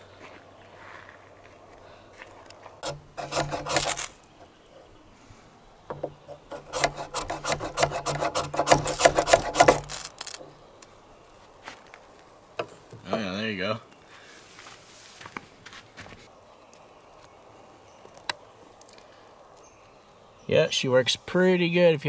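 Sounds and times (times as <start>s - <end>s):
knife scraping ferro rod: 2.8s - 4.2s, 6.2s - 10.4s.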